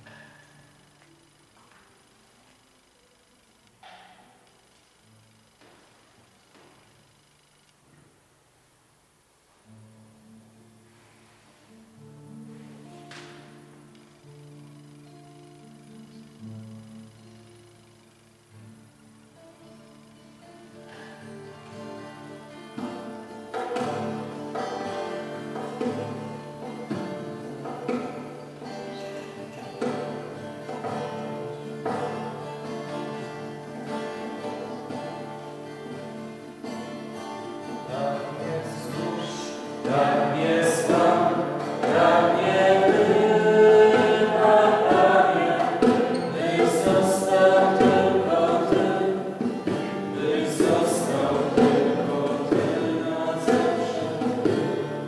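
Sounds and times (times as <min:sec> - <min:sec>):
voices singing: 0:37.6 - 0:55.0.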